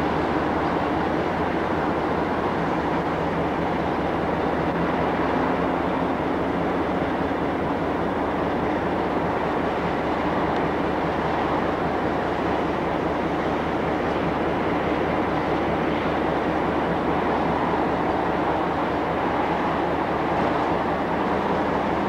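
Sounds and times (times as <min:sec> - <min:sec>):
distant rail traffic rumble: 0:00.0 - 0:22.0.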